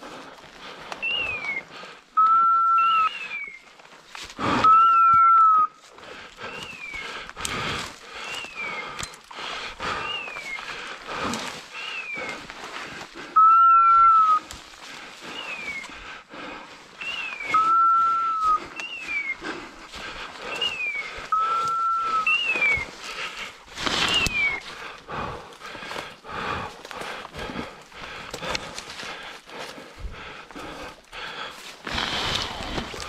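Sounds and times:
long loud whistle notes: 2.2 - 3.6, 4.6 - 5.7, 13.4 - 14.4, 17.1 - 19.3, 20.6 - 22.8
footsteps: 3.7 - 33.0
rustle of brush: 22.2 - 24.8.

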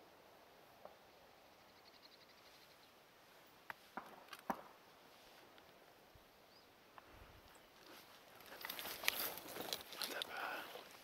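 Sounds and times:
outdoor background hiss: 0.0 - 11.0.

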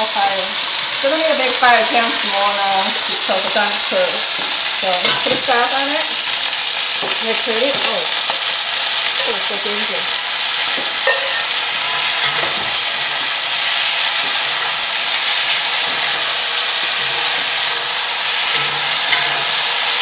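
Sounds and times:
food sizzling in a wok: 0.0 - 20.0
spatula scraping: 10.6 - 20.0.

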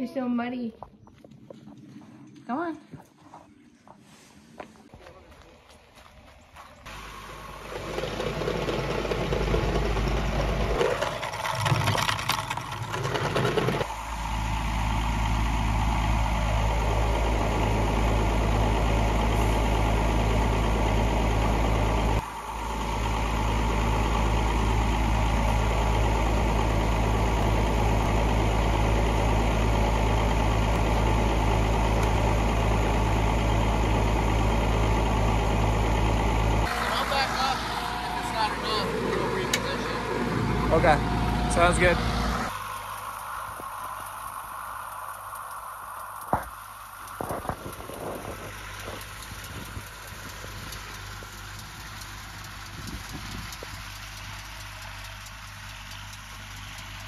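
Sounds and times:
tractor engine idling: 0.0 - 57.0.

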